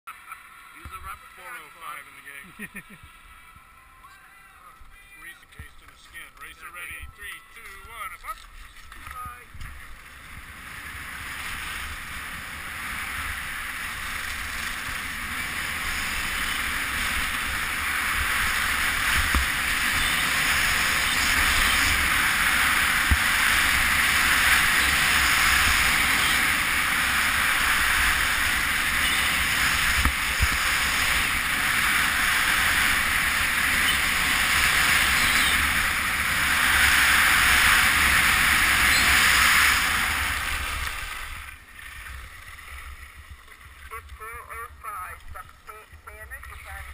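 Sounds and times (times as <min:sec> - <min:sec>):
skis running on snow: 0:05.0 - 0:44.8
wind rushing on microphone: 0:08.6 - 0:41.4.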